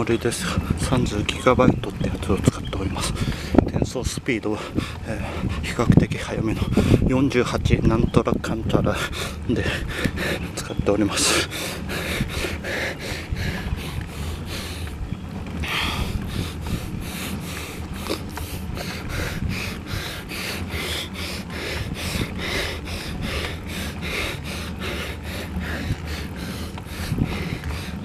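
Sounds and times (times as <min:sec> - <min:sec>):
wind rumble on microphone: 0:00.0 - 0:28.0
person breathing hard: 0:09.0 - 0:10.6, 0:11.2 - 0:14.9, 0:15.6 - 0:28.0.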